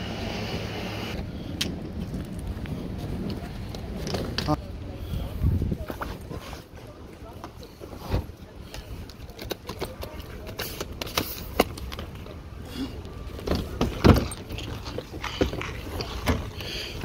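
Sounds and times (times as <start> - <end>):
suitcase knocks and rustles: 13.4 - 14.8.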